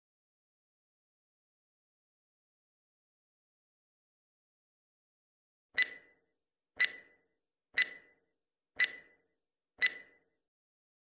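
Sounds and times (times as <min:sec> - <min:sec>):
clock ticks with ringing tail: 0:05.8 - 0:06.2, 0:06.8 - 0:07.2, 0:07.8 - 0:08.2, 0:08.8 - 0:09.2, 0:09.8 - 0:10.2.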